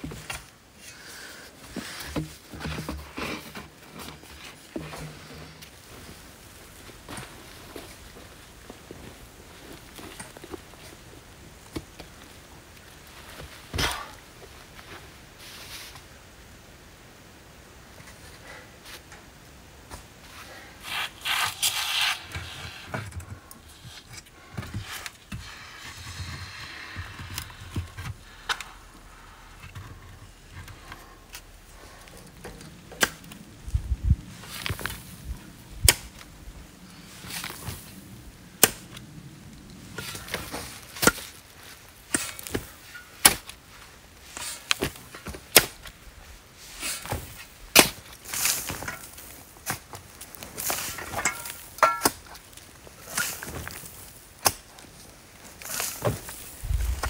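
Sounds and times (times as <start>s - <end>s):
rustling: 0.0s - 16.6s, 17.9s - 57.0s
shovel digging into sandy soil: 20.8s - 23.0s.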